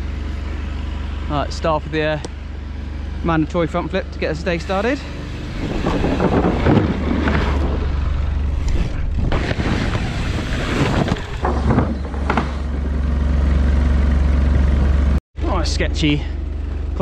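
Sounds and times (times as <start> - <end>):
bike tyres rumbling: 0.0 - 15.2
bike knocks: 5.6 - 8.2, 9.1 - 13.1.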